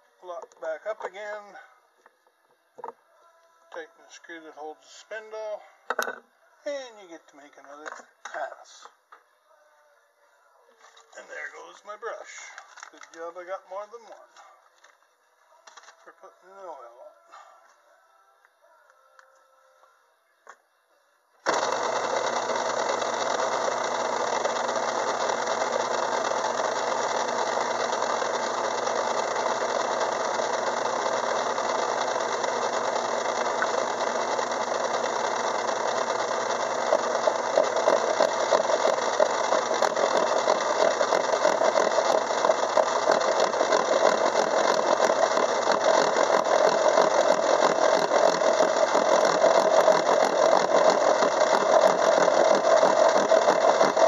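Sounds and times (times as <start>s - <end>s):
metal lathe cutting steel: 21.5s - 54.0s.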